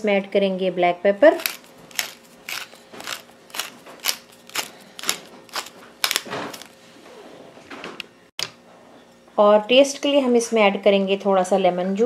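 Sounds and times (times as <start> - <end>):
pepper mill grinding: 1.3 - 6.8.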